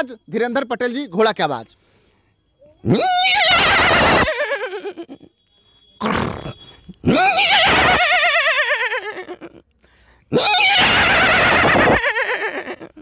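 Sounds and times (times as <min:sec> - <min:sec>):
man imitating horse whinny: 0:02.8 - 0:04.4, 0:06.0 - 0:08.5, 0:10.3 - 0:12.2.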